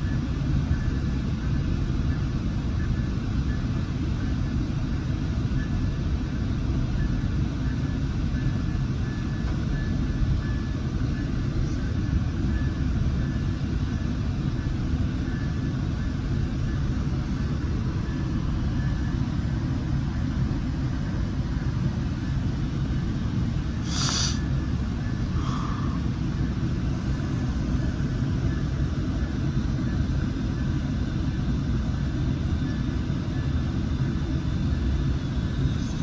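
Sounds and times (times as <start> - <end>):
faint whine: 0.0 - 36.0
train rumbling inside coach: 23.8 - 30.6.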